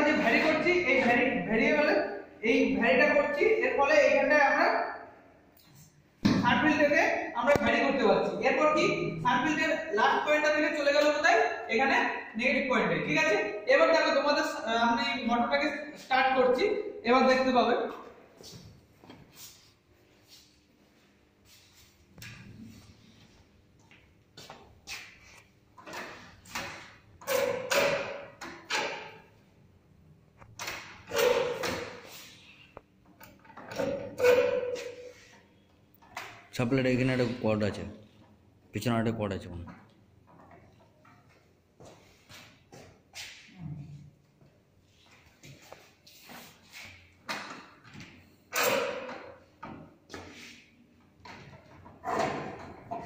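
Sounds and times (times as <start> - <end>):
knocks and scraping clatters: 24.4 - 29.3, 33.0 - 37.5, 39.6 - 44.1, 44.9 - 53.0.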